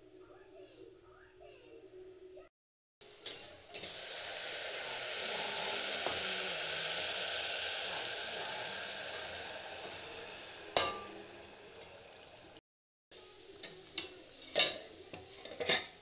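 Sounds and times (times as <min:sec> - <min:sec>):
water sizzling in hot oil: 0:03.0 - 0:12.6.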